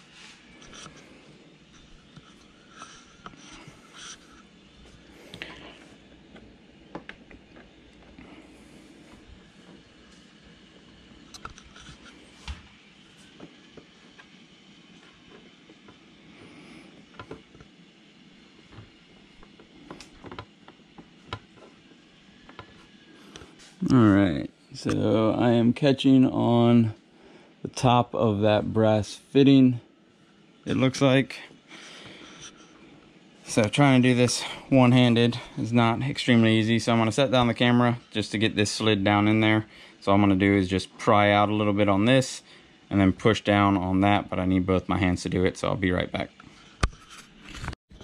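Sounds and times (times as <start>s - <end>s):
metal scraping and rubbing: 0.0s - 4.5s.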